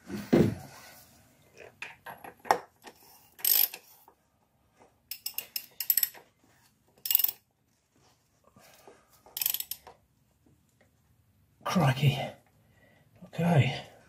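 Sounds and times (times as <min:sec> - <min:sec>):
socket ratchet clicking: 0:03.4 - 0:03.8, 0:05.1 - 0:06.2, 0:07.0 - 0:07.4, 0:09.4 - 0:09.9.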